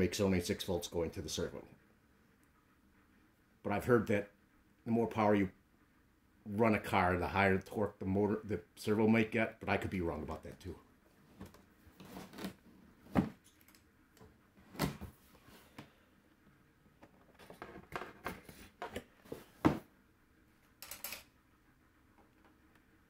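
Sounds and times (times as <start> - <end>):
cardboard scraping rustle: 11.3 - 13.4.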